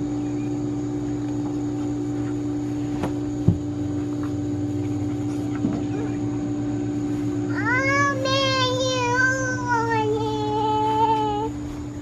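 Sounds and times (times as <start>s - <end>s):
machine-like low hum: 0.0s - 12.0s
young child singing: 7.5s - 11.6s.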